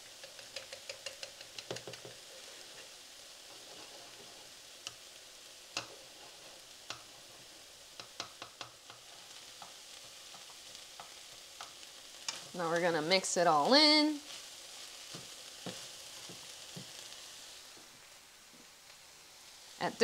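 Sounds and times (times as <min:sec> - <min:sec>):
spatula tapping pan: 0:00.0 - 0:02.3, 0:05.7 - 0:06.2, 0:06.8 - 0:07.2, 0:07.9 - 0:13.0, 0:15.0 - 0:17.0
faint sizzle: 0:00.0 - 0:20.0.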